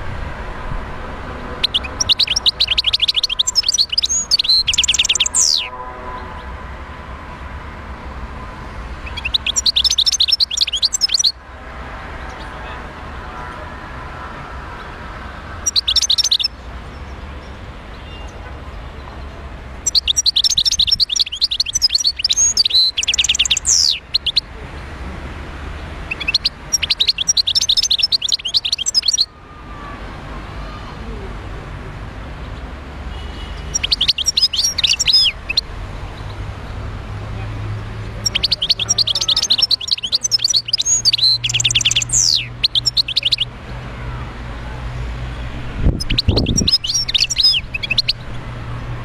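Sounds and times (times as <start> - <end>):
goldfinch twittering: 1.6 - 5.7, 9.0 - 11.3, 15.6 - 16.5, 19.8 - 24.4, 26.1 - 29.3, 33.6 - 35.6, 38.2 - 43.5, 46.0 - 48.4.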